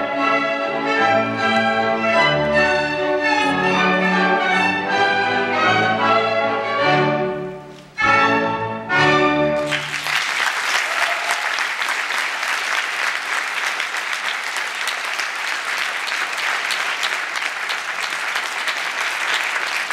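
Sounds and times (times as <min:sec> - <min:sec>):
audience applause: 0:09.6 - 0:19.9.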